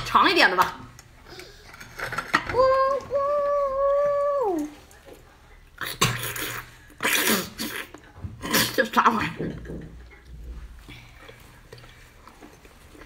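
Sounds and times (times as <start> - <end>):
slurping noises: 2.9 - 9.0.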